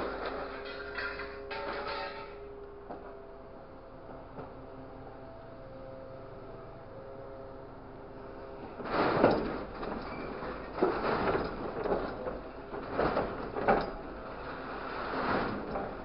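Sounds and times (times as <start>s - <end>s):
metal scraping and clanking: 0.0s - 2.6s, 8.8s - 16.0s.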